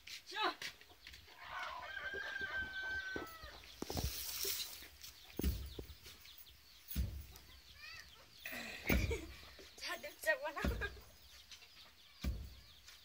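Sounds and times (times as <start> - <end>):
rooster crowing: 1.4 - 3.6
dull thumps: 5.4 - 6.0, 8.8 - 9.4, 10.5 - 11.1.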